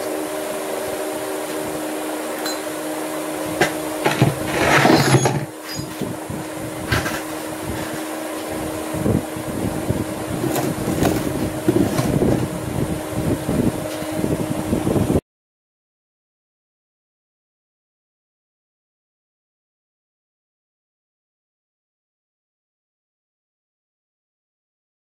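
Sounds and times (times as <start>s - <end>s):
steady mechanical hum: 0.0s - 15.2s
metal frame knocking and scraping: 3.6s - 6.0s
plastic case moved on concrete: 4.0s - 5.9s, 10.4s - 12.4s.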